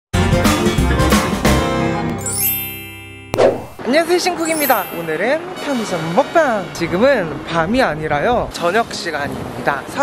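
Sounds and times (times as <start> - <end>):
jingle music with drum beat: 2.2 - 3.8, 4.4 - 5.3.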